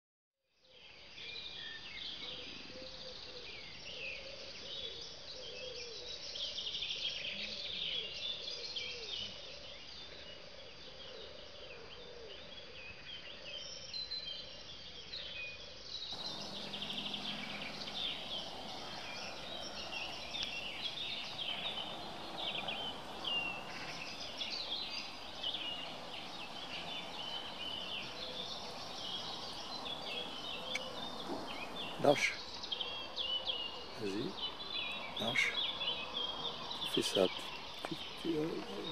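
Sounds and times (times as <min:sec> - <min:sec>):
low repeated bird call: 0:16.2 - 0:38.9
small birds chirping: 0:16.2 - 0:38.9.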